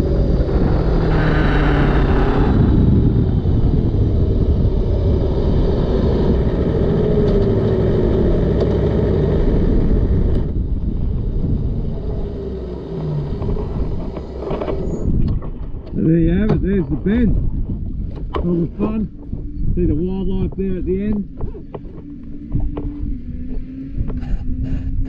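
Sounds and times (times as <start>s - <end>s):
motorcycle engine downshifting: 0.0s - 16.8s
wind rush on microphone: 0.0s - 25.0s.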